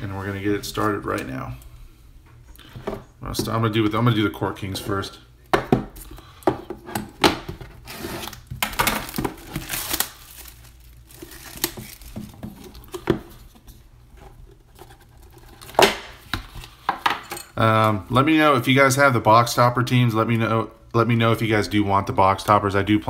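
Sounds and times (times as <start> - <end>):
plastic wrap crinkling: 7.8 - 13.6.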